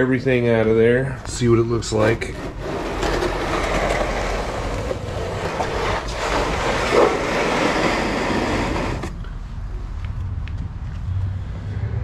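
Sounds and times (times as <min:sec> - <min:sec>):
oil pan scraping on concrete: 0:01.9 - 0:09.2.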